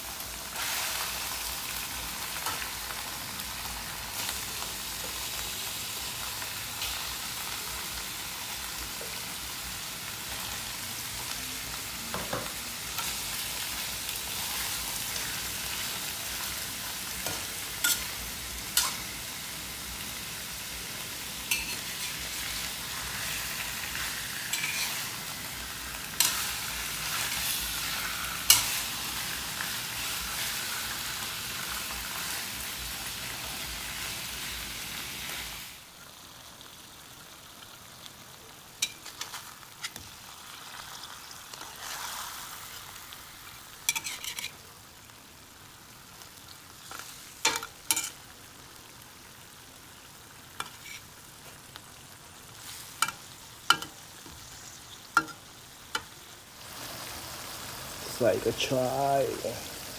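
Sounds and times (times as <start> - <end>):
fish sizzling in a wok: 0.0 - 59.9
spatula scraping and knocking wok: 17.2 - 19.1, 21.5 - 22.6, 24.4 - 25.2, 43.9 - 44.6, 50.6 - 51.1, 55.2 - 56.1.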